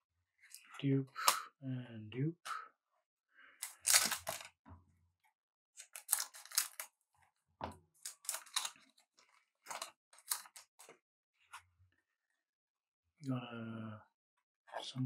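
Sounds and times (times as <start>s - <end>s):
cards and packaging rustling: 3.6s - 4.6s, 5.8s - 6.9s, 8.0s - 11.0s.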